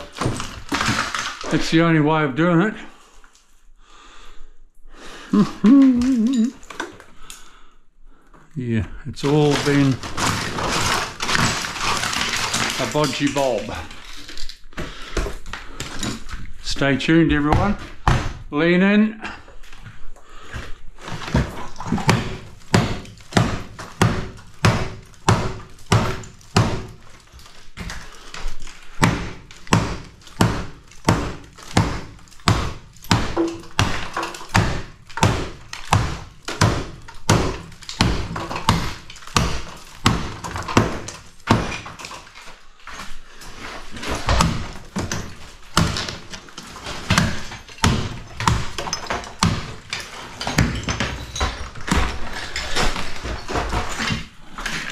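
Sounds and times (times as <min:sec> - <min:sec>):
claw hammer striking wall sheeting: 0:00.0 - 0:01.6, 0:09.2 - 0:13.8, 0:17.2 - 0:18.5, 0:21.0 - 0:42.5, 0:43.6 - 0:54.9
sheeting breaking: 0:00.0 - 0:01.8, 0:09.2 - 0:14.7.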